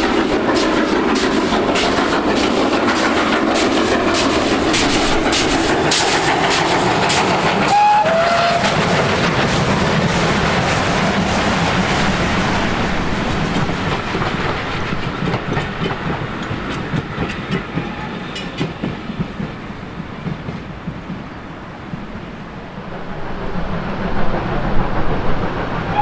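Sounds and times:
train wheels clicking over rail joints: 0.0s - 22.2s
steady rumble of train coaches: 0.0s - 26.0s.

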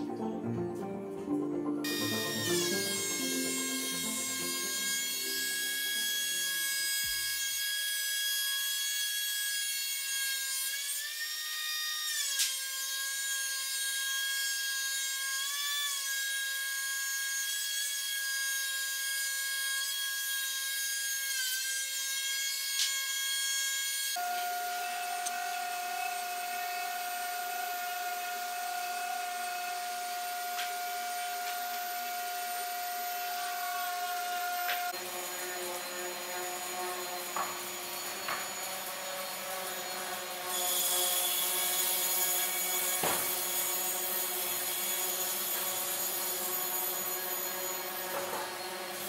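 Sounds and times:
power saw whining: 1.8s - 9.4s, 18.0s - 49.0s.

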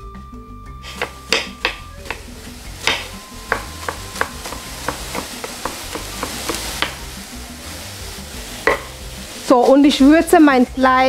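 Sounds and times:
knife chopping on wooden board: 0.9s - 7.0s.

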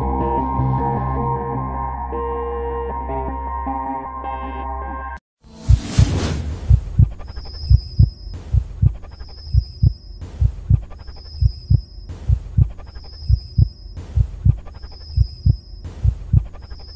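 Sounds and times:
low hum: 5.5s - 16.9s
heartbeat thumps: 5.6s - 16.9s.

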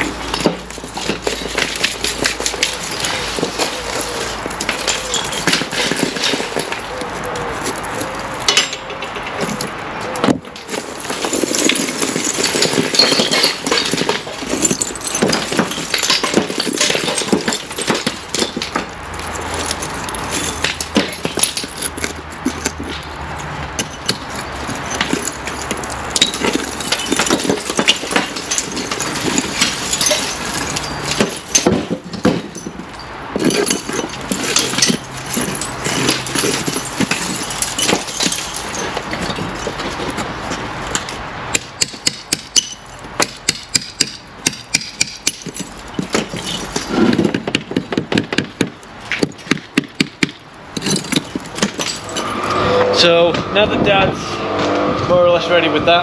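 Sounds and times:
stones and grit clattering: 0.0s - 52.5s.

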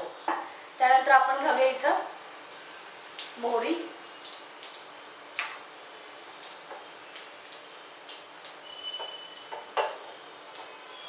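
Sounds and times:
seeds popping in hot oil: 4.2s - 5.6s.

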